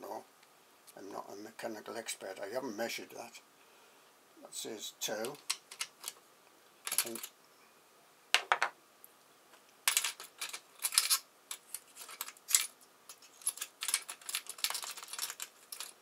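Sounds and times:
metal keys clinking and jangling: 0:06.9 - 0:07.3, 0:09.9 - 0:16.0.

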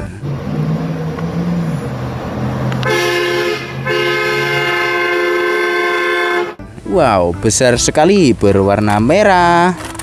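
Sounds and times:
engine running low: 0:00.0 - 0:06.5
loud multi-tone car horn: 0:02.8 - 0:06.6.

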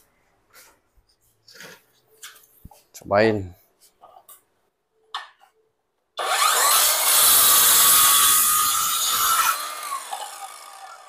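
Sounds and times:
circular saw cutting wood: 0:06.2 - 0:11.0
saw blade winding down: 0:06.2 - 0:11.0.

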